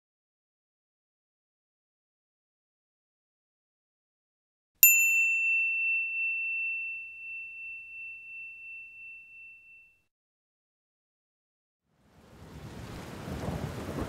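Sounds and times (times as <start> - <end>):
high bell-like ding: 4.8 - 10.1.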